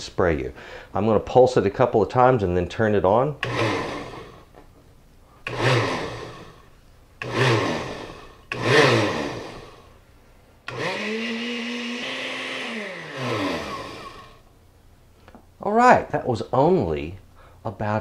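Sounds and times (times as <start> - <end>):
blender whirring: 3.4 - 4.5, 5.4 - 9.9, 10.6 - 14.4.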